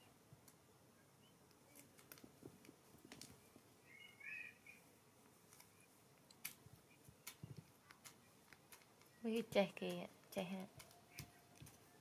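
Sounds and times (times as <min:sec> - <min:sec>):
high chirps: 0:03.8 - 0:04.9.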